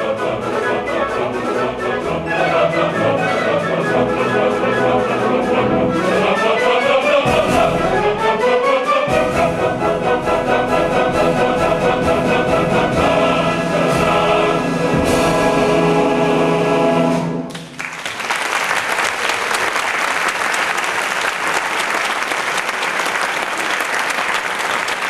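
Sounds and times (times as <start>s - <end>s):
opera chorus and orchestra: 0.0s - 17.5s
audience applause: 17.5s - 25.0s.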